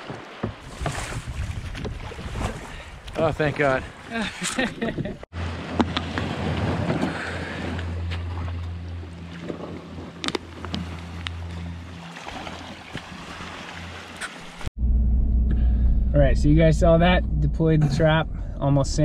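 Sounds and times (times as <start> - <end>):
wind rumbling on microphone: 0.6 - 5.2.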